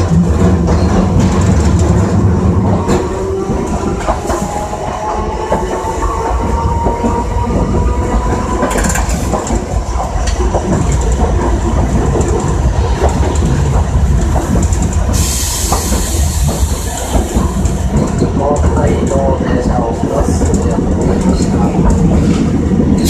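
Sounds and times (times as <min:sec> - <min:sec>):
tram running gear rumble: 0:00.0 - 0:23.0
wheels clicking on rails: 0:00.0 - 0:23.0
loud hiss: 0:15.1 - 0:17.3.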